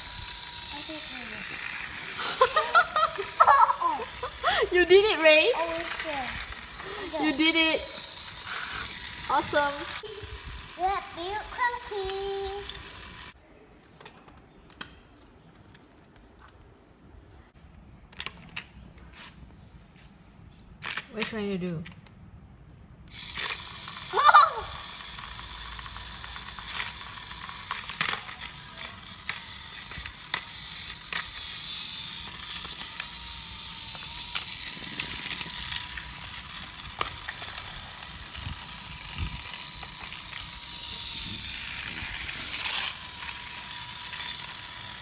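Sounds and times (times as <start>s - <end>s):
toy train motor whirring: 0.0s - 13.4s, 23.1s - 45.0s.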